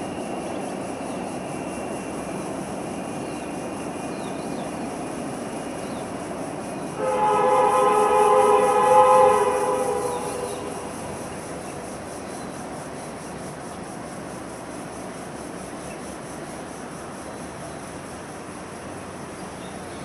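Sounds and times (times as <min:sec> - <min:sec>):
pulsing insect drone: 0:00.0 - 0:20.0
locomotive horn chord: 0:07.0 - 0:12.1.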